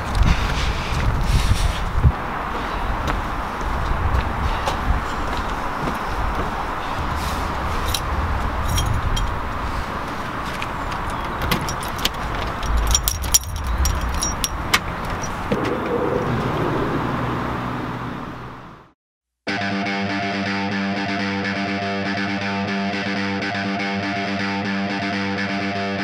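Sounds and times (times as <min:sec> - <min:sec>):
low outdoor rumble: 0:00.0 - 0:19.0
keys jangling: 0:07.8 - 0:09.4, 0:11.2 - 0:15.4
door handle turning: 0:11.0 - 0:15.5.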